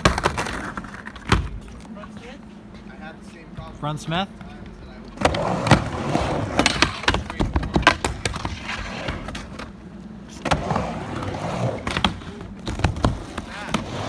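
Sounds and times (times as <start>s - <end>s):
skateboard wheels rolling: 0.0s - 2.4s, 4.4s - 14.0s
skateboard clacking on ramp: 5.2s - 9.5s.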